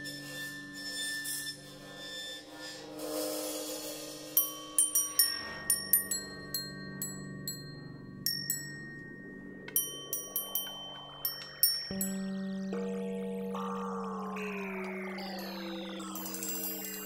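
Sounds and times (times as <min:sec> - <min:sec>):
low sustained hum: 0:00.0 - 0:17.0
small metal bells struck: 0:04.4 - 0:09.0, 0:09.7 - 0:12.3, 0:15.5 - 0:17.0.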